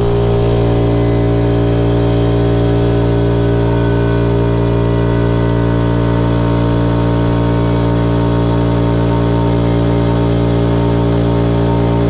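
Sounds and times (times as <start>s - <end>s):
compressor hiss: 0.0s - 1.1s
air compressor running: 0.0s - 12.0s.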